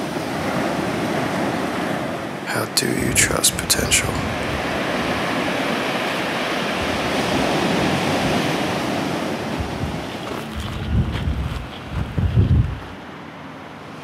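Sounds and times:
ocean waves breaking: 0.0 - 10.8.

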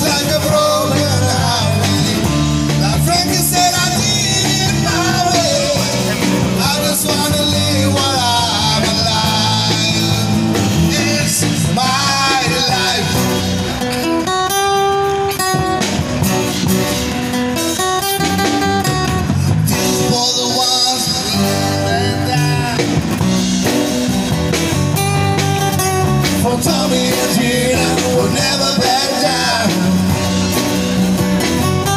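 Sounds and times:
person singing: 0.0 - 13.4, 19.7 - 23.0, 26.2 - 30.3
drum kit: 0.0 - 31.9
strummed acoustic guitars: 0.0 - 31.9.

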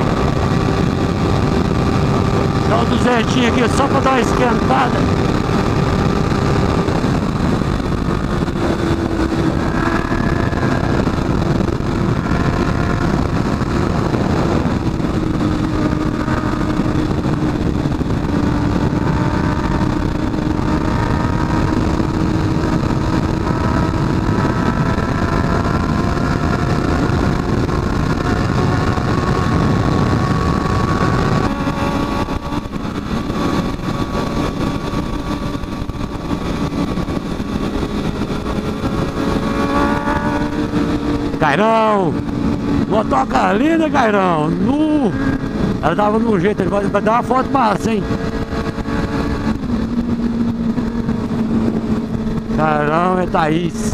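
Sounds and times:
motorcycle engine running: 0.0 - 53.9
wind rush on microphone: 0.0 - 53.9.

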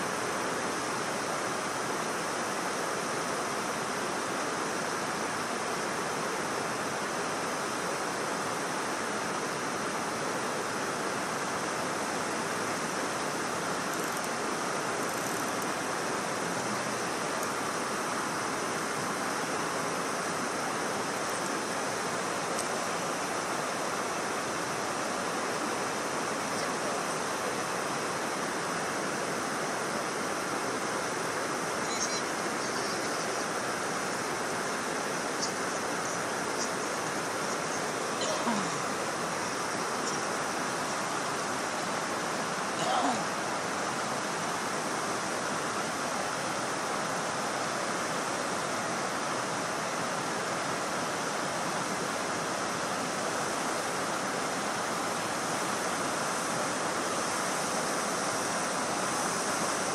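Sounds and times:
water rushing over a dam: 0.0 - 59.9
faint high chirps: 31.8 - 33.6, 35.3 - 38.9.

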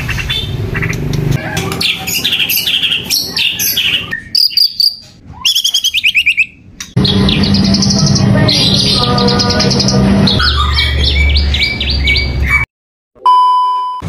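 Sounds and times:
songbirds whistling and trilling: 0.1 - 12.7
steady low hum: 6.9 - 10.5.

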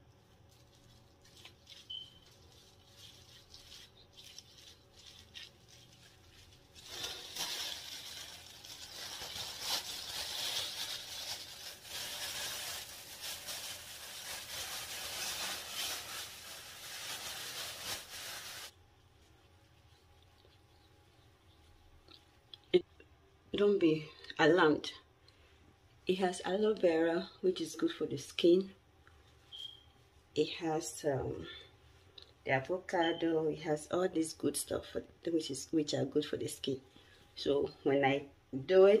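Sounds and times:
plastic bag crinkling: 0.2 - 21.1.

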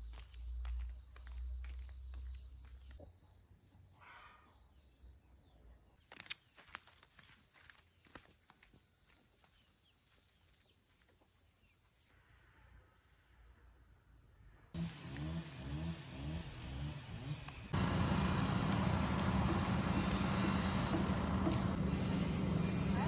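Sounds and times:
vehicle engine starting and revving: 14.8 - 23.0.

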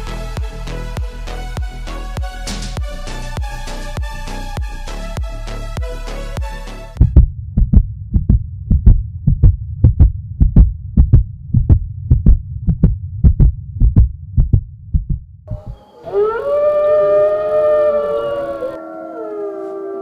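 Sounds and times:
heartbeat double thumps: 7.0 - 15.8
low hum: 7.0 - 19.5.

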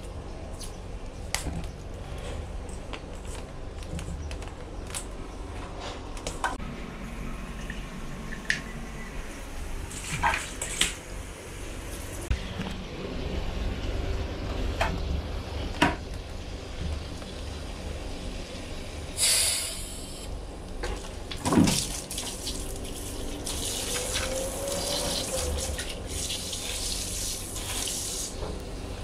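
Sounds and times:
water spraying from tube: 21.8 - 28.4.

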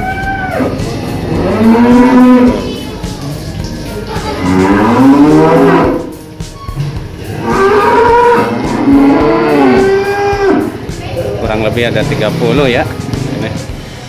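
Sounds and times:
cows mooing: 0.0 - 2.8, 4.3 - 6.2, 7.2 - 10.8.

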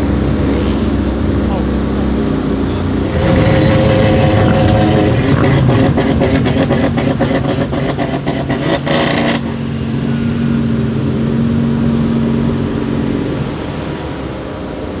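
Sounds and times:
car engines idling: 0.0 - 15.0
car engine revving with crackling pops: 3.0 - 9.6.

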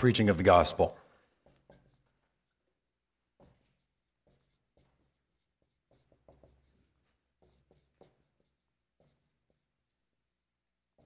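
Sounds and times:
marker scratching on whiteboard: 0.0 - 11.0.

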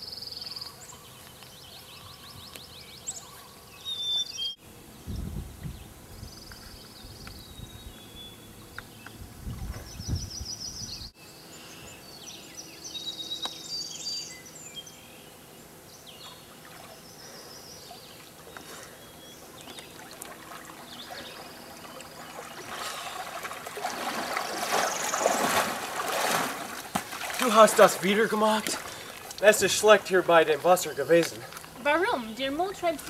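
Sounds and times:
birds chirping and trilling: 0.0 - 33.0
water splashing and trickling: 16.2 - 33.0.

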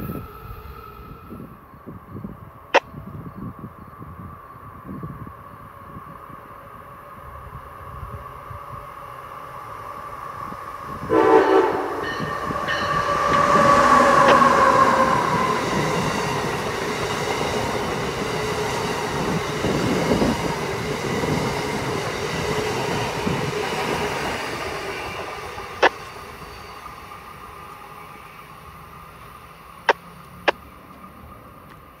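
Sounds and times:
train rushing past: 7.0 - 32.0
train horn blast: 11.0 - 16.0.

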